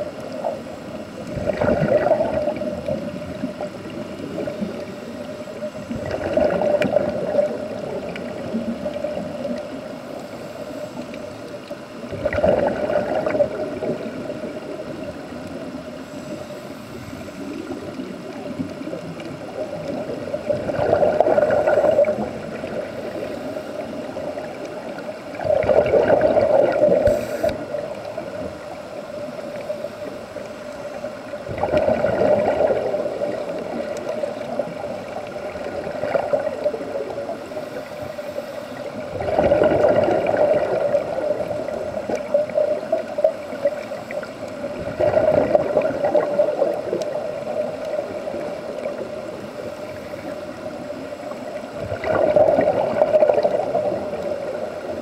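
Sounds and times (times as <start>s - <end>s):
underwater bubbles gurgling: 0.0s - 55.0s
regulator hiss: 26.9s - 27.8s.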